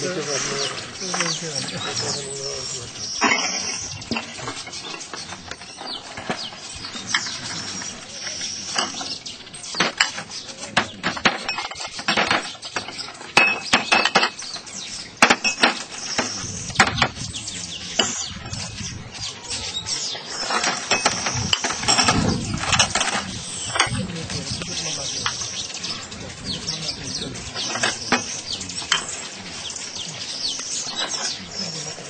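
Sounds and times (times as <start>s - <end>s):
steady hiss: 0.0s - 12.1s
tea glasses clinking: 3.2s - 4.4s.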